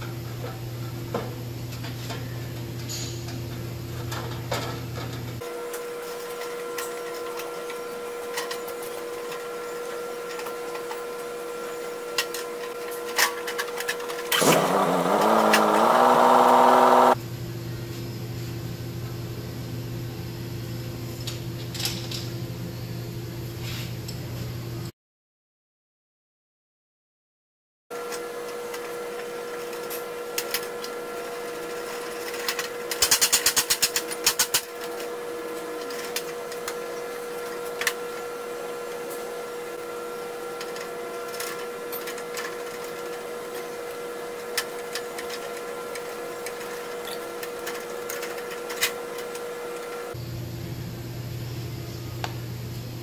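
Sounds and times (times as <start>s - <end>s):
steady machine hum: 48.6s - 53.0s.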